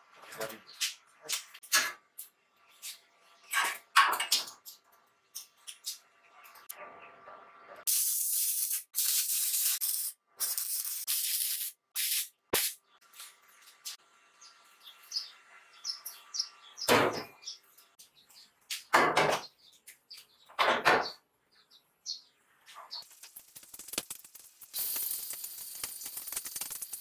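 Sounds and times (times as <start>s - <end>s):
arc welding crackling hiss: 7.9s - 12.8s, 23.0s - 27.0s.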